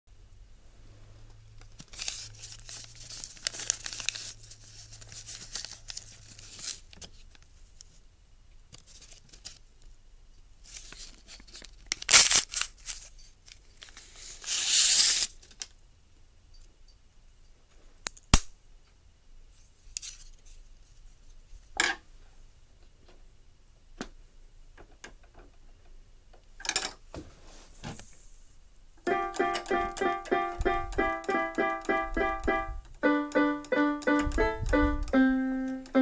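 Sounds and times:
paper crinkling: 0:01.8 - 0:07.2
paper tearing: 0:12.0 - 0:12.7.

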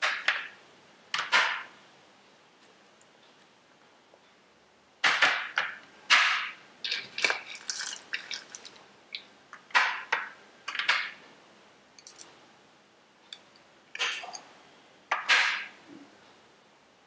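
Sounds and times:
spoon scraping plastic bowls: 0:06.8 - 0:08.8.

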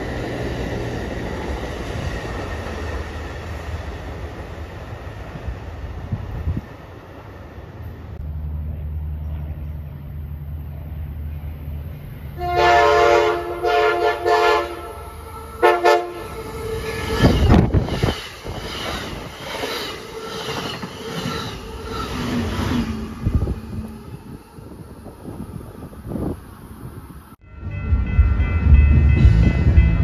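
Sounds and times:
train engine drone: 0:00.0 - 0:30.0
train air horn blasts: 0:12.4 - 0:17.6
train wheel clatter: 0:16.8 - 0:22.5.

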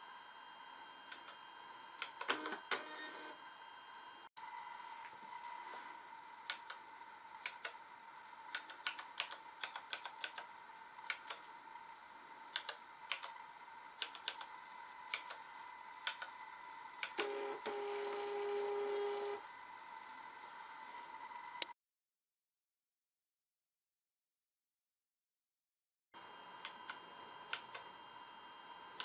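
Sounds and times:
label printer motor whine: 0:10.4 - 0:21.6.

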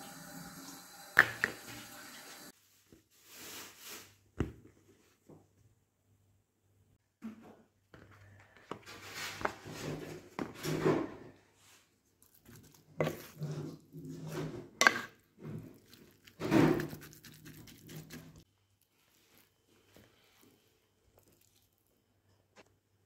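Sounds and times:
wooden spoon scraping clay pot: 0:12.4 - 0:18.5.

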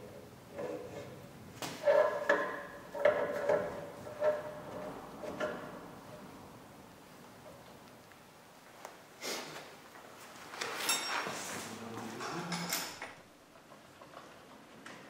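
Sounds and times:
scraping and clunking: 0:00.5 - 0:06.3.

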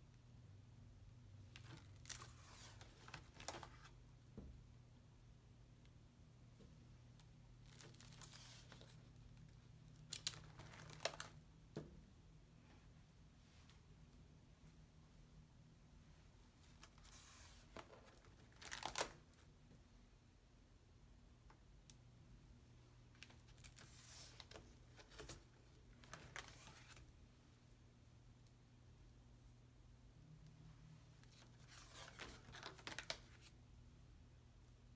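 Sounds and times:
low room hum: 0:00.0 - 0:34.9
paper pages being turned: 0:01.6 - 0:04.0, 0:07.6 - 0:09.0, 0:10.1 - 0:11.4, 0:16.8 - 0:19.2, 0:23.2 - 0:27.1, 0:31.2 - 0:33.5.

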